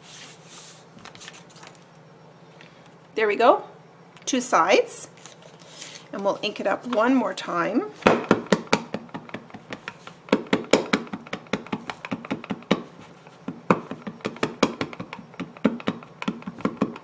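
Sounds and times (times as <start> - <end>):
ink pad tapping on stamp: 8.1 - 17.0.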